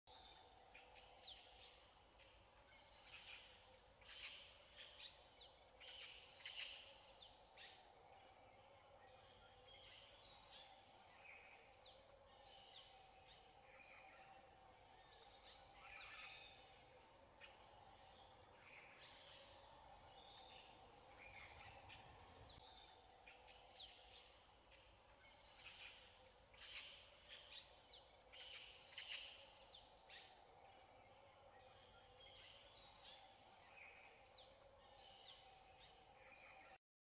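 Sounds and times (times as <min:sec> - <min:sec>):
insect drone: 0:00.1 - 0:36.8.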